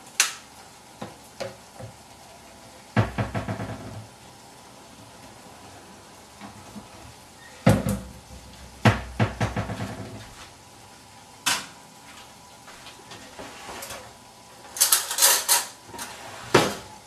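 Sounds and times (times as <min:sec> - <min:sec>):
dishes and pots knocking: 0:03.0 - 0:04.0, 0:08.8 - 0:10.1.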